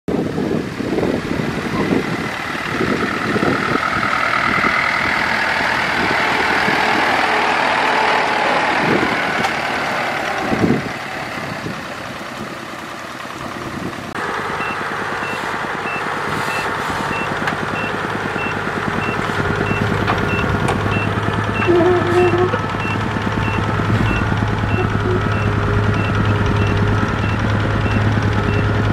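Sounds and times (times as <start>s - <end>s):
truck engine running: 0.1s - 28.9s
reversing alarm beeping: 14.6s - 28.8s
knocks and rattles: 18.8s - 28.9s.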